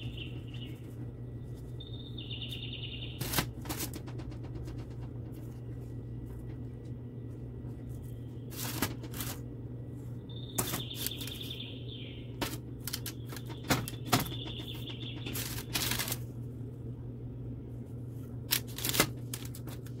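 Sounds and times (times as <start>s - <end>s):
steady low hum: 0.0s - 20.0s
pastries handled on baking tray: 7.6s - 9.5s, 12.4s - 16.4s, 17.8s - 20.0s.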